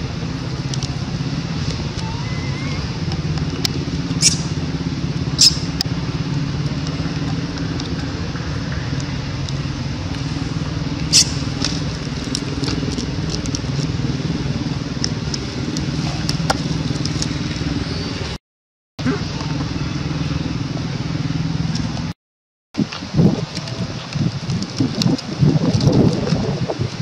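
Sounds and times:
low motor hum: 0.0 - 18.4, 19.0 - 22.2.

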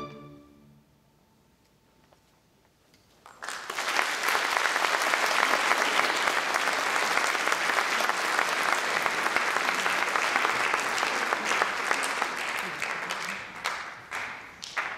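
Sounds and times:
audience applauding: 3.2 - 14.9.

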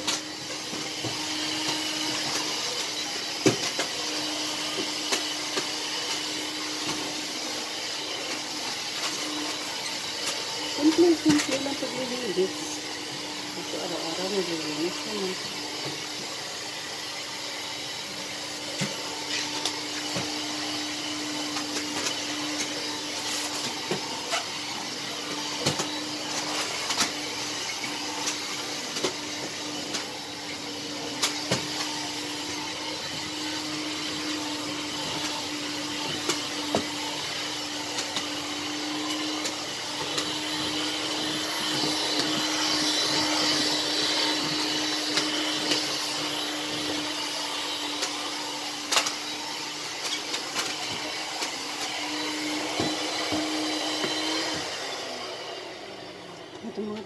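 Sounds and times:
vacuum cleaner running: 0.0 - 57.0.

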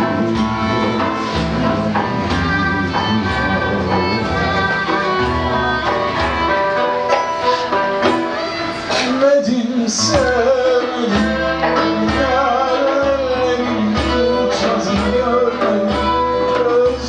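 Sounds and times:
deep drum strokes: 0.0 - 6.7
bowed violin: 0.0 - 8.8
classical guitar: 0.0 - 17.0.

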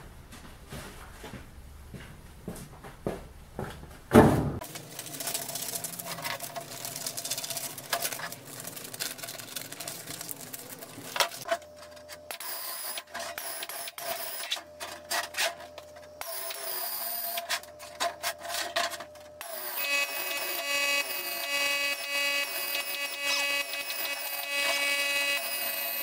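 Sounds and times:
pneumatic shear cutting sheet metal: 12.3 - 15.6, 19.4 - 26.0.

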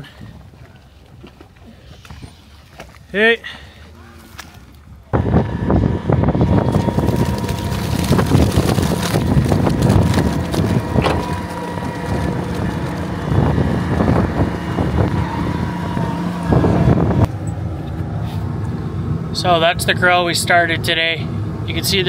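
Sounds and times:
machine hum: 5.0 - 19.5
manure spreader clattering: 6.6 - 15.3.

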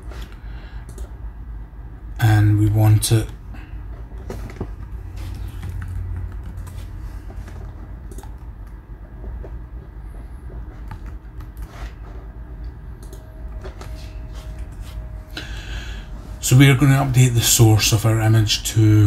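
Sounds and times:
low hum: 0.0 - 19.0
keyboard and mouse clicks: 0.8 - 1.1, 5.5 - 6.8, 7.4 - 9.6, 10.7 - 12.0, 12.6 - 14.0.

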